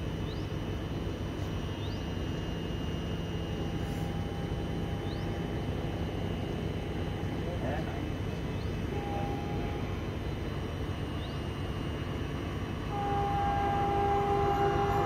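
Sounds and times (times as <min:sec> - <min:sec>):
low train rumble: 0:00.0 - 0:15.0
train horn blasts: 0:08.9 - 0:10.3, 0:12.6 - 0:15.0.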